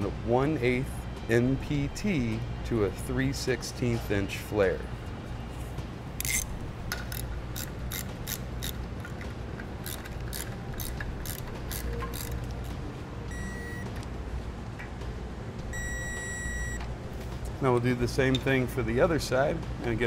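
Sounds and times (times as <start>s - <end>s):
ratchet wrench clicking: 6.2s - 12.7s
short electronic beeps: 13.3s - 13.9s, 15.7s - 16.8s.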